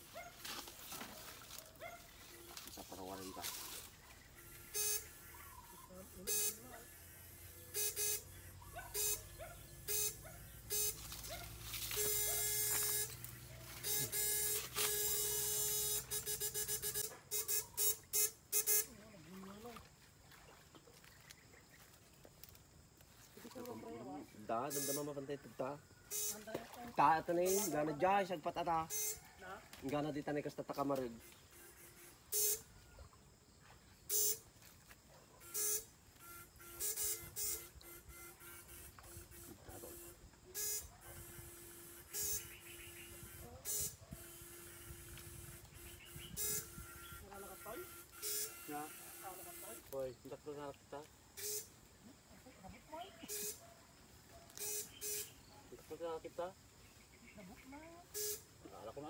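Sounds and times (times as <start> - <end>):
electrofishing shocker buzzing: 2.3 - 19.5, 24.5 - 25.2, 26.0 - 29.3, 30.4 - 32.7, 34.1 - 34.5, 35.4 - 50.6, 51.3 - 51.9, 53.2 - 53.6, 54.6 - 55.5, 58.1 - 58.8
short steady beeps: 4.3 - 11.1, 12.0 - 19.0, 24.6 - 25.2, 26.1 - 26.5, 28.7 - 29.2, 31.2 - 32.7, 34.1 - 34.4, 35.4 - 49.8, 51.4 - 51.8, 53.2 - 53.6, 54.6 - 55.4, 58.1 - 58.5.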